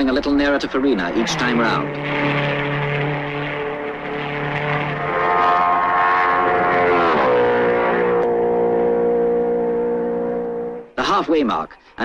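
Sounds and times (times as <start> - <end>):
louder higher engine note: 0.0 - 11.0
racing car engines at full speed: 0.0 - 11.0.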